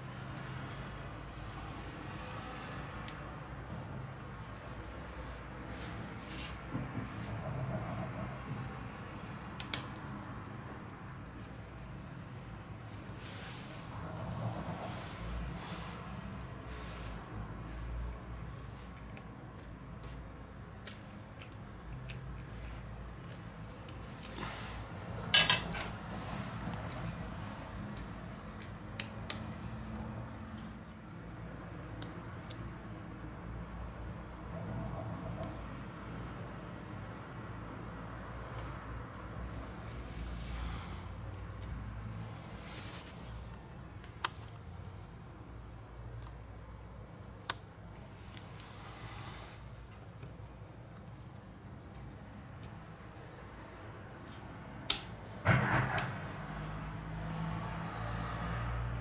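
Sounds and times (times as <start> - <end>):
small clicks of tools and parts: 9.6 - 10.1.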